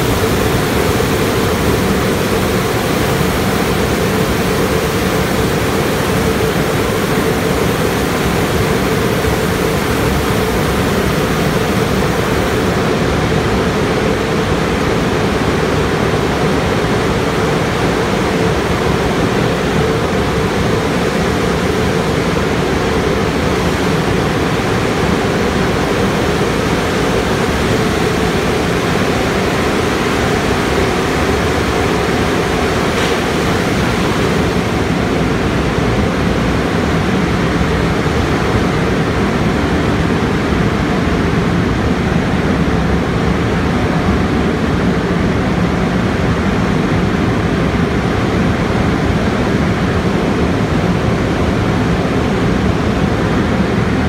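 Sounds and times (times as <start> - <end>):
car wash water spray: 0.0 - 35.8
dryer blowers rushing: 0.0 - 54.0.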